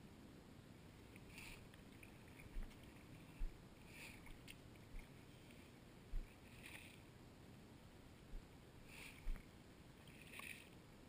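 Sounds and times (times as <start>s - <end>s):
water splashing and sloshing: 1.0s - 7.2s, 8.3s - 11.0s.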